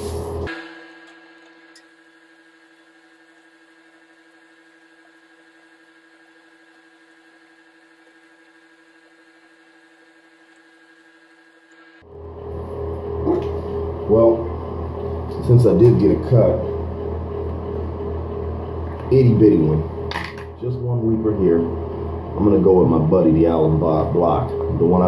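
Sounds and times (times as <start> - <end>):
short hiss: 0.0 - 0.5
faint steady tonal hum: 0.1 - 25.0.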